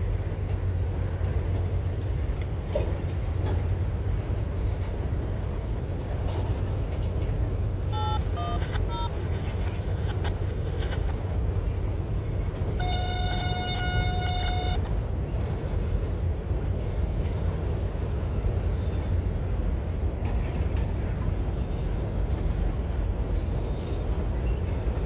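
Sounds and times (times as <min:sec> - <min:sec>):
train rumbling over bridge: 0:00.0 - 0:25.0
train horn blast: 0:12.8 - 0:14.9.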